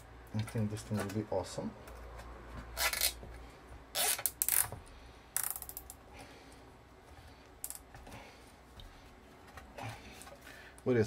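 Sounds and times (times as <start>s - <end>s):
zip ties zipping rasps: 2.8s - 3.2s, 3.9s - 4.8s.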